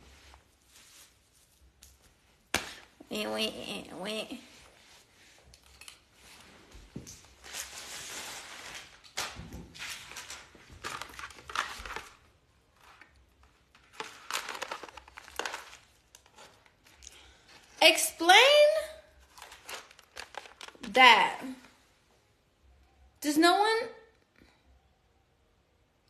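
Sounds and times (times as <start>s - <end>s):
paper packaging rustling: 7.0s - 17.8s, 19.2s - 21.7s.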